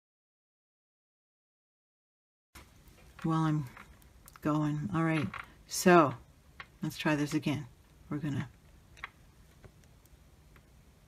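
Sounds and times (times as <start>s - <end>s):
faint room noise: 2.6s - 11.0s.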